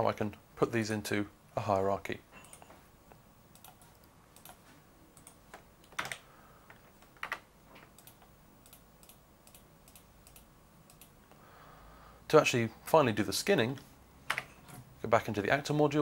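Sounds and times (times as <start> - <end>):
keyboard and mouse clicks: 3.5 - 4.6, 5.2 - 11.4, 14.3 - 14.5.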